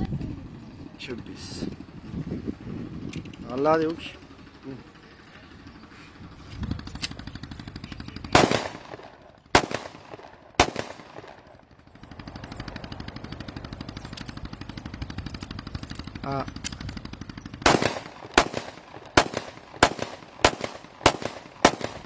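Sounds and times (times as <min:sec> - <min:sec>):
low pulsing noise: 0:00.0 - 0:22.0
pistol shots: 0:08.3 - 0:11.6, 0:17.6 - 0:22.0.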